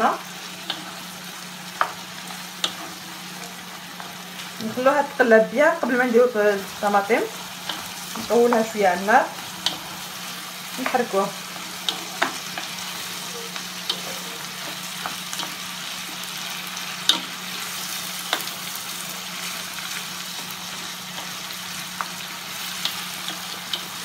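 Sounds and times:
food sizzling in hot oil: 0:00.0 - 0:24.0.

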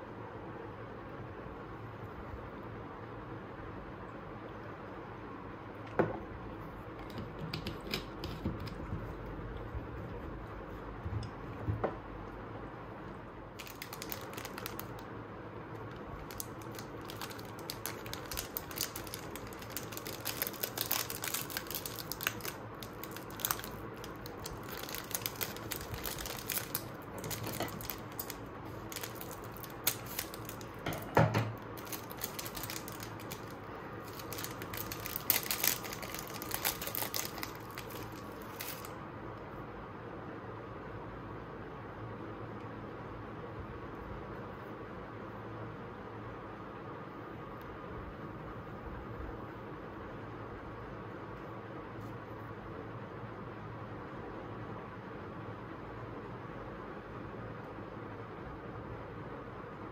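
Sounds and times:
plastic wrapper crinkling: 0:13.5 - 0:15.1, 0:15.8 - 0:39.0.

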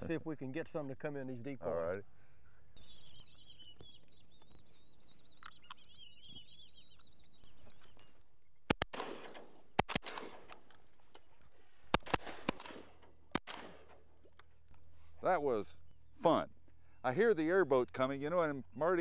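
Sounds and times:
birds chirping and whistling: 0:02.2 - 0:09.6, 0:10.7 - 0:11.8, 0:15.0 - 0:19.0
shotgun shots with echo: 0:08.7 - 0:10.6, 0:11.9 - 0:14.1.

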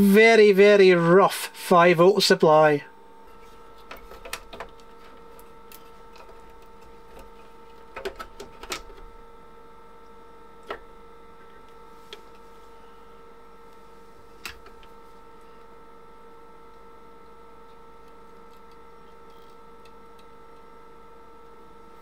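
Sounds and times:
faint multi-tone hum: 0:00.0 - 0:22.0.

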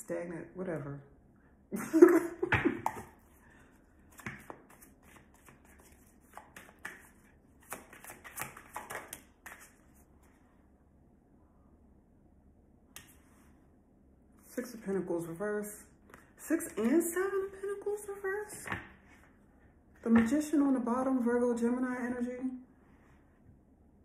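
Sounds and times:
cards being shuffled: 0:04.0 - 0:10.0.

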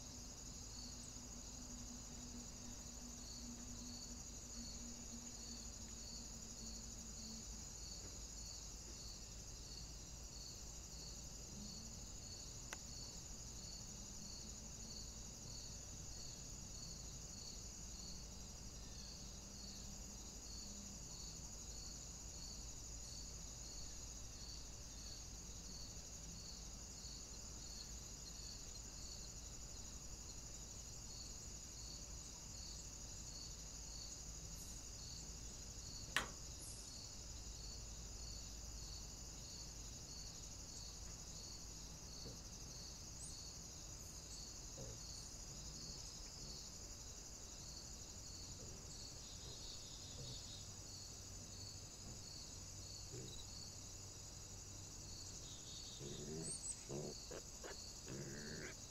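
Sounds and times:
insects singing: 0:31.2 - 0:58.9.

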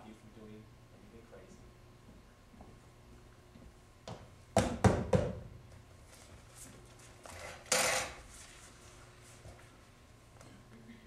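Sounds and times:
knocks on wood: 0:04.1 - 0:05.4.

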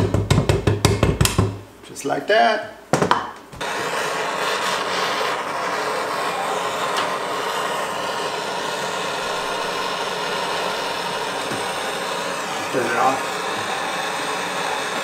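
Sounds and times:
gas torch hissing: 0:03.6 - 0:15.0.

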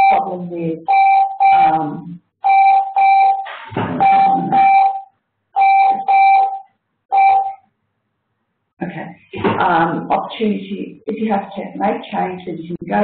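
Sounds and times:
electronic beeps in pairs: 0:00.0 - 0:01.8, 0:02.4 - 0:07.6.

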